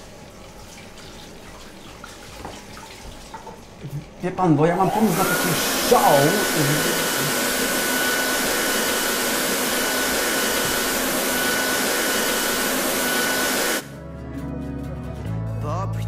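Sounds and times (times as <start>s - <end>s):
electric air blower rushing: 4.8s - 13.9s
quiet music: 13.8s - 16.0s.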